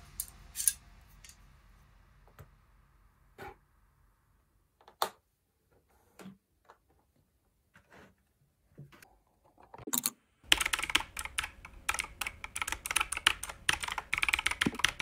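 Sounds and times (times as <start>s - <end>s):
fast typing on keyboard: 10.5s - 15.0s.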